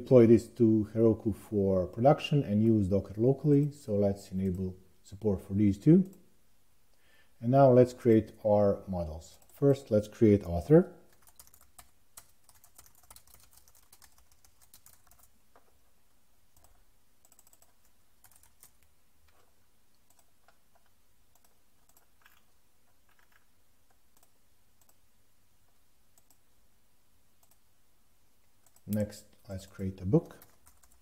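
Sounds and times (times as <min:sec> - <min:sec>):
keyboard typing: 0:11.1 - 0:15.7, 0:16.5 - 0:25.0, 0:26.1 - 0:26.4, 0:27.4 - 0:27.6, 0:28.6 - 0:31.0
mouse clicks: 0:28.6 - 0:29.4.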